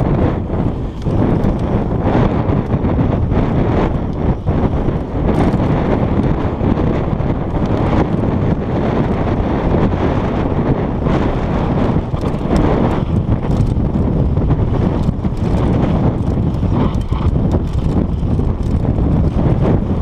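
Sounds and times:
bike knocks and rattles: 0.0 - 10.2, 11.0 - 20.0
wind buffeting microphone: 0.0 - 20.0
tyre noise on dirt: 11.0 - 20.0.

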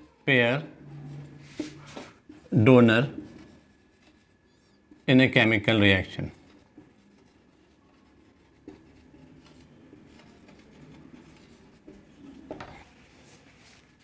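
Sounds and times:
marker scratching on whiteboard: 0.8 - 14.0.

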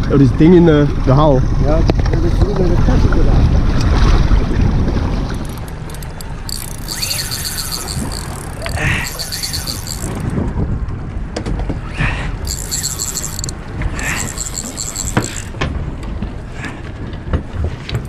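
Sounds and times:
boat noise: 0.0 - 18.0
fishing reel ticking: 5.3 - 10.4, 12.4 - 15.6.

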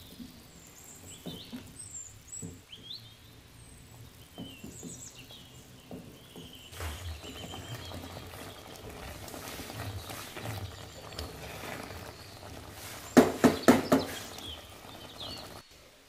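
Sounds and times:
thick sauce bubbling in a pot: 0.0 - 15.6
faint birds chirping: 0.0 - 16.0
wooden spatula knocking and scraping: 4.3 - 15.6.

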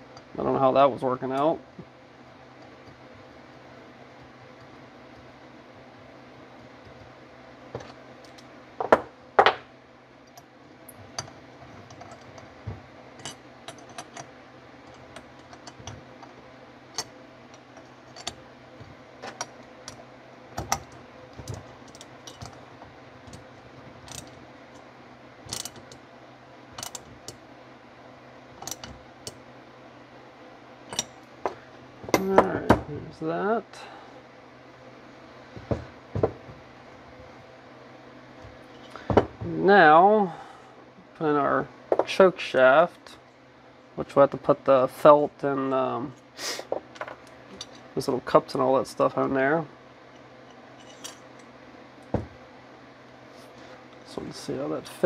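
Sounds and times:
faint hum: 0.0 - 55.0
metal parts clicking: 14.9 - 16.3, 20.6 - 22.6, 24.0 - 24.4, 25.5 - 26.0, 26.8 - 27.4, 28.6 - 29.4, 30.9 - 31.1, 50.8 - 51.2.

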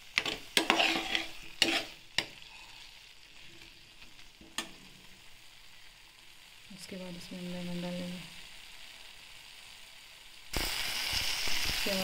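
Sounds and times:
light sizzle: 0.0 - 12.0
metal spoon scraping a pan: 0.1 - 2.4.

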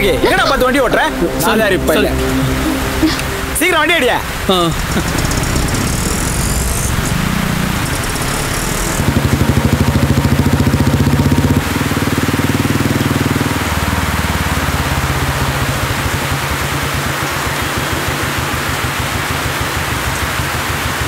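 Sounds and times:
rain falling: 0.0 - 21.0
motorcycle engine running: 4.8 - 21.0.

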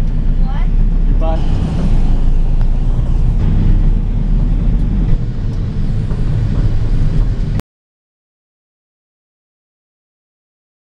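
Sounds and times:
vehicle engine and road rumble: 0.0 - 7.6.

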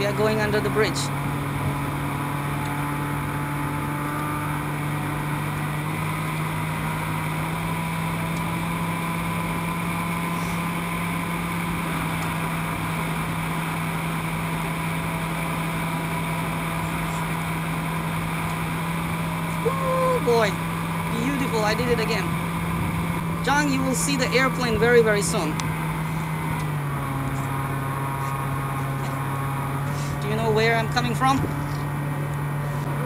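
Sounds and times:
electric motor and propeller drone: 0.0 - 33.0.

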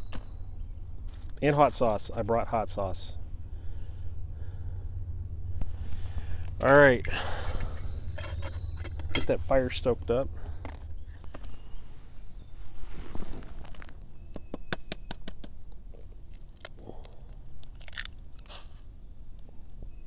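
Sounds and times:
sharp snaps and pops: 13.5 - 19.8
twig fire crackling: 14.8 - 19.7.

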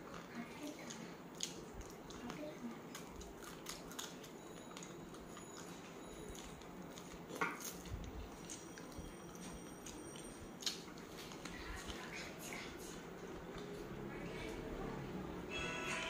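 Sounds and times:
quiet chewing: 0.0 - 15.0.

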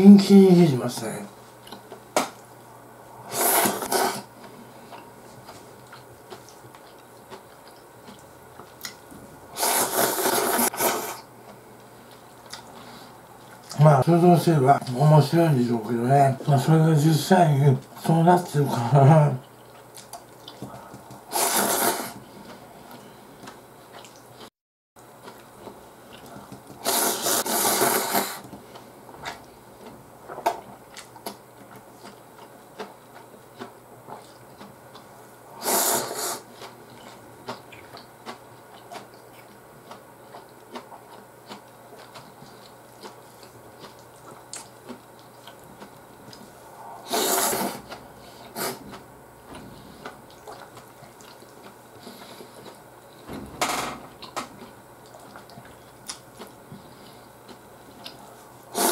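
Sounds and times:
man slurping noodles: 3.3 - 4.3, 9.6 - 11.2, 21.3 - 22.2, 26.8 - 28.4, 35.6 - 36.4, 47.0 - 47.8
chewing and mouth clicks: 4.9 - 9.1, 11.5 - 12.8, 19.4 - 21.2, 22.5 - 24.5, 28.4 - 35.2, 36.5 - 46.6, 50.0 - 53.2, 54.2 - 58.5.

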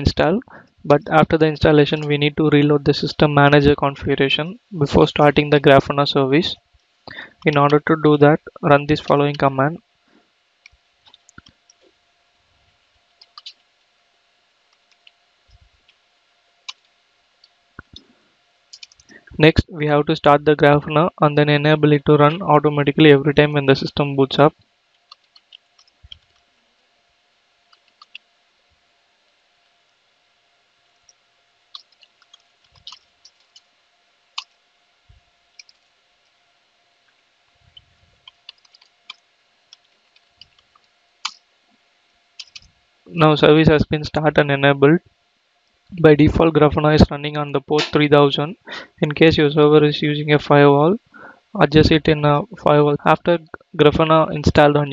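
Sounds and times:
faint steady hum: 0.0 - 54.9
computer keyboard typing: 18.7 - 19.2, 25.0 - 26.4, 27.7 - 28.2, 31.0 - 33.7, 35.5 - 35.9, 38.2 - 41.4, 42.4 - 42.7.

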